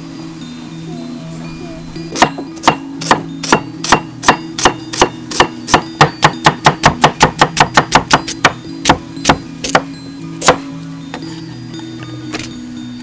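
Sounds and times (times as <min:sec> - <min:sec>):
knife chopping on wooden board: 0:02.2 - 0:10.6.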